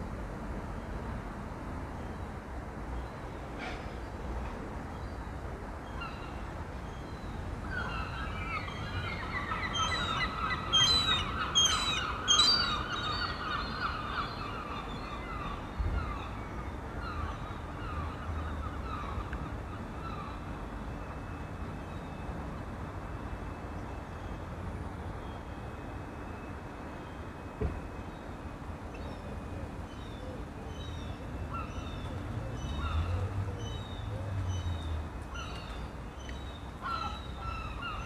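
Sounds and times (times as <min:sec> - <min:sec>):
flock of birds calling: 0:07.1 - 0:20.5, 0:29.9 - 0:38.0.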